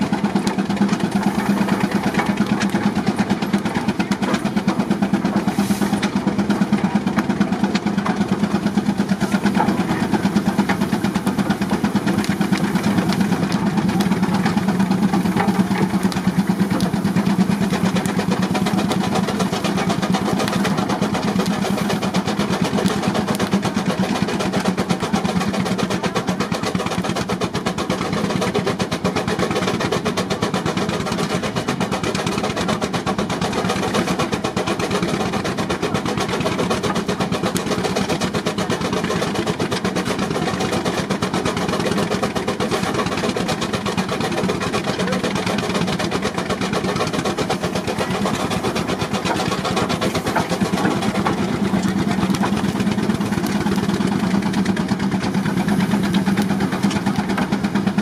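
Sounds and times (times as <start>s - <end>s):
steam engine exhaust beat: 0.0s - 58.0s.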